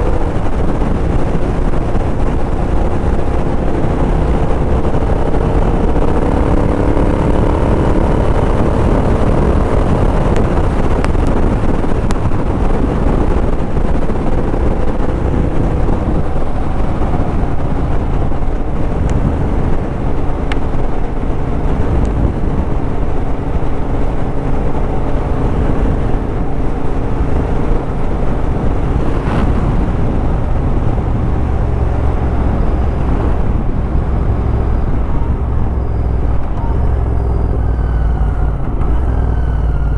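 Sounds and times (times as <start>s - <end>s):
motorcycle engine drone: 0.0s - 39.9s
wind rush on microphone: 0.0s - 39.9s.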